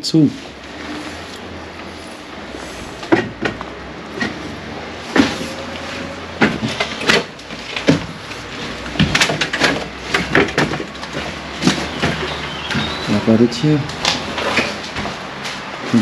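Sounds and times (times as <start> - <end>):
irregular knocks and clacks: 3.0 - 5.5, 6.4 - 13.1.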